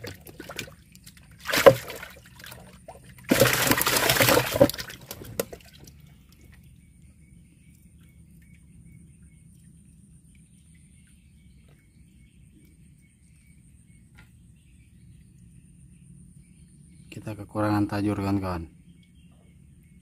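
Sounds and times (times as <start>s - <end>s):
water splashing and sloshing: 0.0s - 6.8s.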